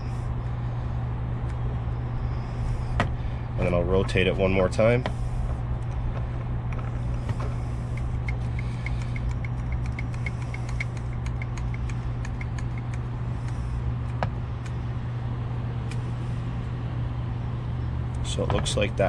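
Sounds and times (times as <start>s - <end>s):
vehicle engine idling: 0.0s - 19.0s
tube expander clicks: 8.2s - 13.0s.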